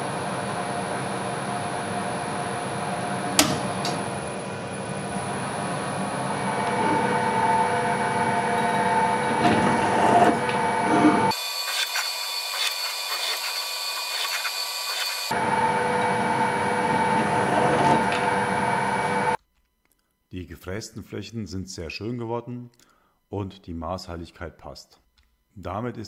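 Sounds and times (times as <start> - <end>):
bench drill motor running: 0.7 - 19.4
high-pitched metal cutting: 2.6 - 19.4.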